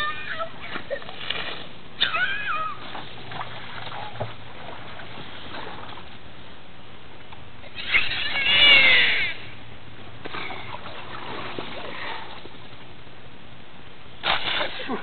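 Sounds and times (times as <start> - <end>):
child squealing: 0.0 - 0.8, 2.0 - 2.8, 7.7 - 9.5
water splashing onto grass: 14.2 - 15.0.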